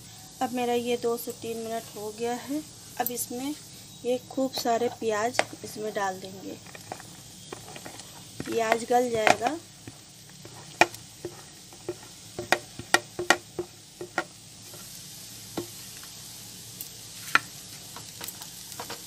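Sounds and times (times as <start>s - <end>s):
faint sizzle in pan: 0.0s - 19.0s
spatula tapping plate and pan: 4.6s - 5.6s, 6.7s - 14.9s, 15.6s - 15.8s.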